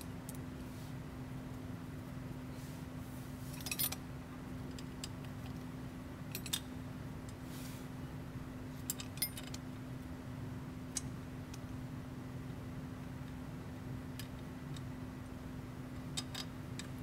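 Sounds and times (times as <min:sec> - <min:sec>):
steady low hum: 0:00.0 - 0:17.0
metal hardware clinking: 0:03.6 - 0:04.0.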